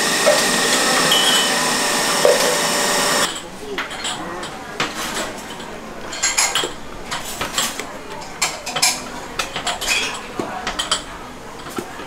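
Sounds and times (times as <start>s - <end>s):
bowl clinking against pot: 0.2s - 2.7s.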